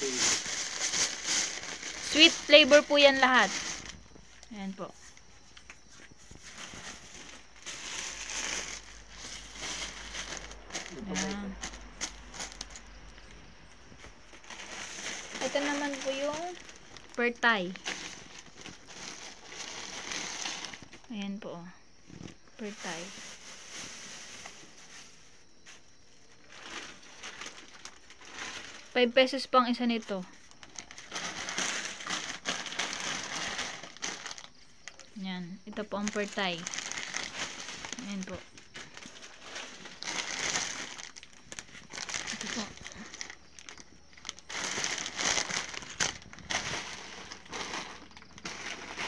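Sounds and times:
plastic bags crinkling: 0:00.0 - 0:21.1, 0:22.1 - 0:29.1, 0:29.9 - 0:35.2, 0:35.8 - 0:49.0.

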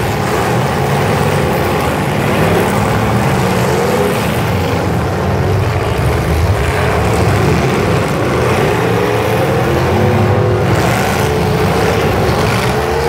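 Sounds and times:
car engines revving: 0:00.0 - 0:13.0.

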